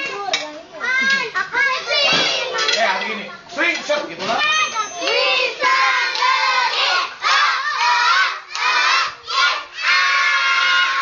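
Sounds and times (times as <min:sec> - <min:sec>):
young children shouting: 0:04.4 - 0:11.0.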